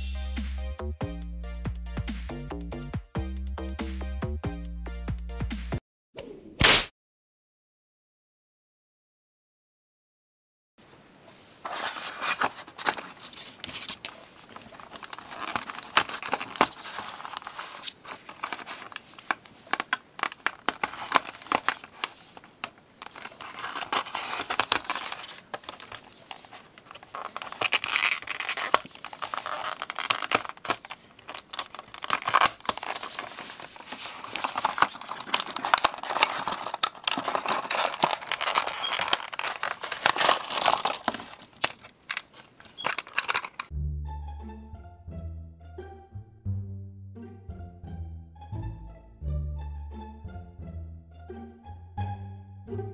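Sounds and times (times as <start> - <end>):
cardboard tearing: 11.6 - 43.7
plastic blister pack crinkling: 11.6 - 43.7.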